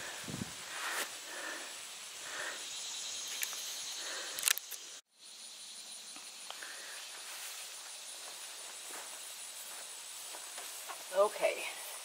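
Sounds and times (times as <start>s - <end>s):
steady hiss: 0.0s - 12.0s
camera handling clicks: 4.4s - 4.8s.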